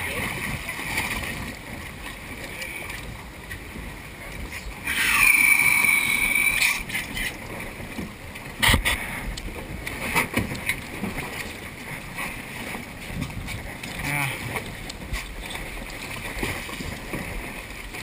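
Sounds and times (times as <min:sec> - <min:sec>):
loud high-pitched squeal: 0:04.9 - 0:06.8.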